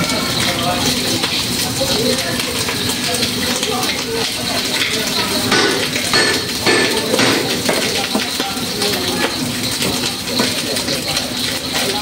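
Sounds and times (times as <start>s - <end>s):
gas burners hissing: 0.0s - 12.0s
indistinct voices: 4.1s - 9.4s
utensils knocking and clinking: 4.8s - 9.4s.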